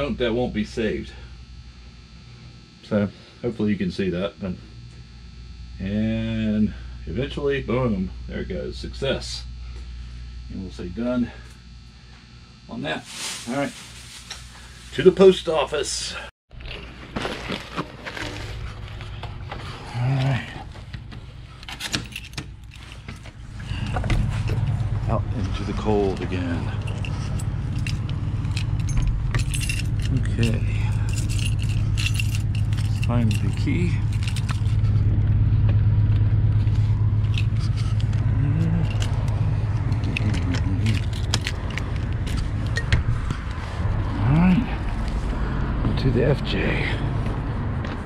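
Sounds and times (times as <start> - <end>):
fabric rubbing on camera: 13.0 - 15.1
steady low rumble: 18.4 - 48.0
keys clicking in door lock: 21.6 - 22.8, 38.8 - 43.0
key scraping in door lock: 21.6 - 23.2, 26.8 - 34.9, 38.8 - 43.5
brief low hum: 23.2 - 48.0.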